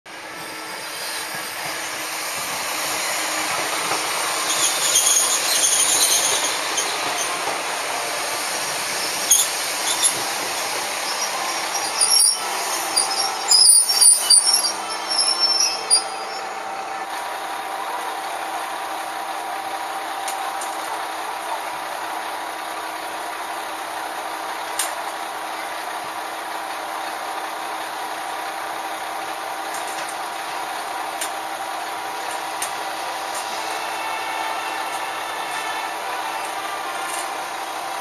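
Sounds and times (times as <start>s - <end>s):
diesel train engines running: 0.1s - 38.0s
train wheels squealing: 0.2s - 17.2s.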